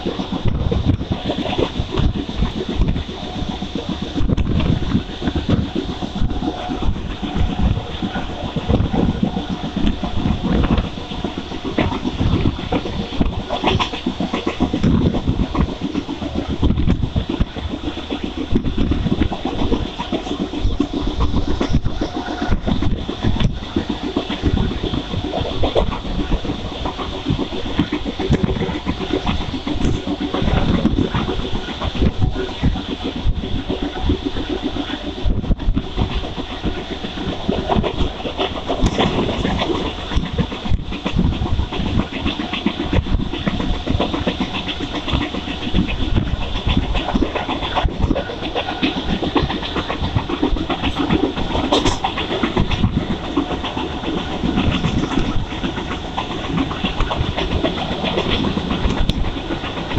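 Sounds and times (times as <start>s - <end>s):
train running noise: 0.0s - 59.9s
wind buffeting microphone: 0.0s - 59.9s.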